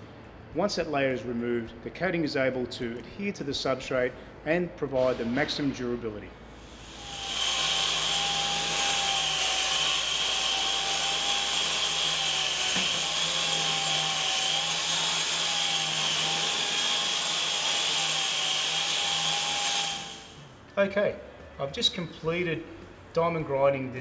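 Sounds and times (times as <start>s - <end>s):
dust extraction rushing hiss: 6.6s - 12.3s
concrete grinder whine: 6.7s - 20.3s.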